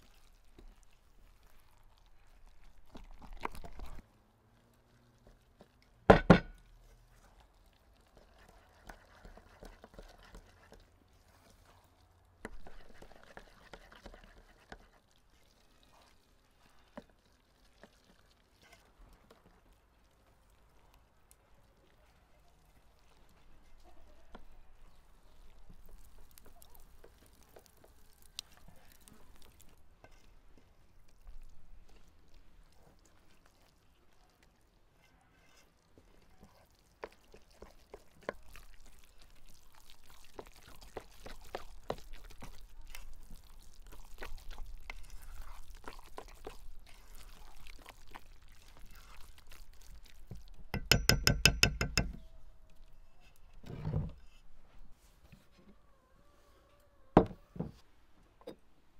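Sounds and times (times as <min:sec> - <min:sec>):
hand squelching wet meat: 0:14.5 - 0:50.7.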